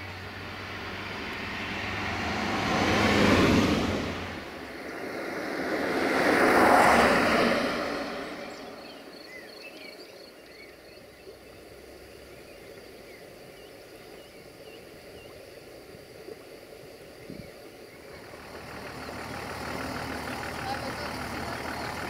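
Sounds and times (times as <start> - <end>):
rushing noise: 0.0 - 9.9
small birds chirping: 7.9 - 22.0.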